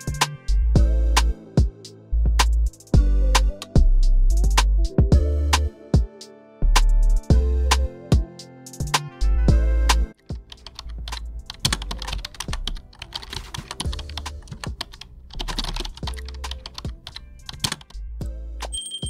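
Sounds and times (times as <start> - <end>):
background music with bass: 0.0 - 18.9
typing on keyboard: 10.5 - 17.9.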